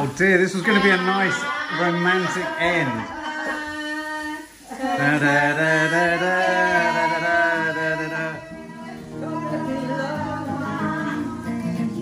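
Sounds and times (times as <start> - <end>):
acoustic guitar: 0.0 - 12.0
man singing: 0.0 - 12.0.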